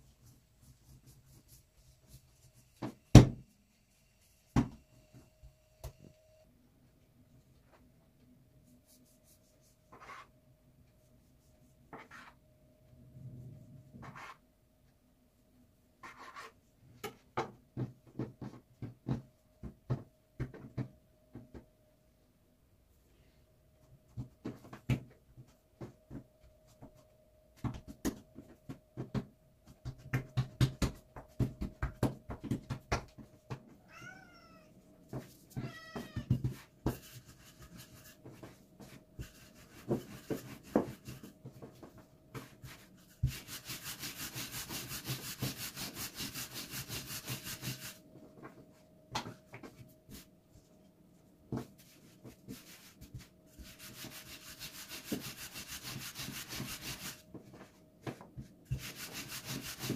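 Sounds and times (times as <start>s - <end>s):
faint steady hum: 0.0s - 59.6s
knocks and taps of hand work: 17.0s - 21.7s, 27.6s - 33.7s
fast scratching or rubbing: 42.7s - 48.0s, 53.6s - 57.2s, 58.7s - 59.9s.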